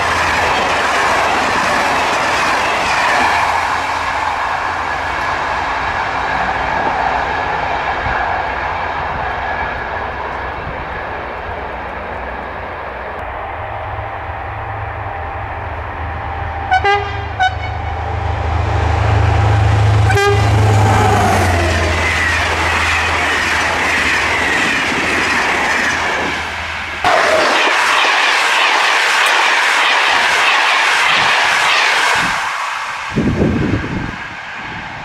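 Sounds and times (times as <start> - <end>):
locomotive engine drone: 0.0 - 29.5
train coaches rushing past: 0.0 - 35.0
train horn blasts: 16.6 - 18.6, 19.4 - 22.0.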